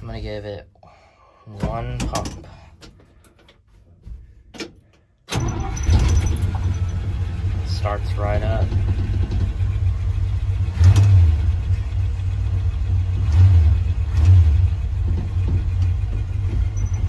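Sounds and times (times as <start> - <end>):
truck engine idling: 5.4 - 17.0.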